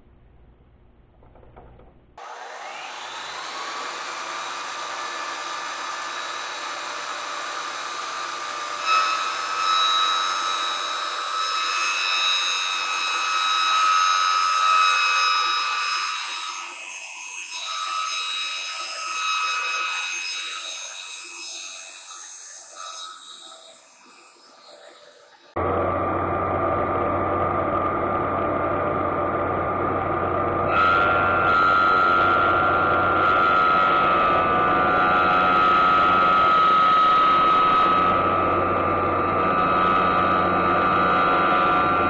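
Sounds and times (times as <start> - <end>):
milling machine whine: 24.4 - 42.0.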